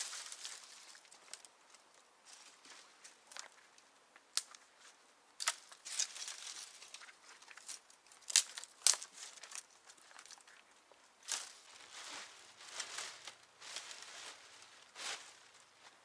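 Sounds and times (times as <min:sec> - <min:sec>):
sharp snaps and rustles: 0:00.0 - 0:11.7
crunching and crackling: 0:00.0 - 0:15.8.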